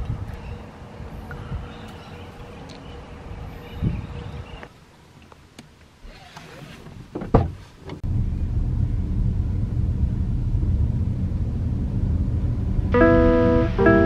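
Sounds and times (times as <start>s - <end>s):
plucked guitar music: 12.9s - 14.0s.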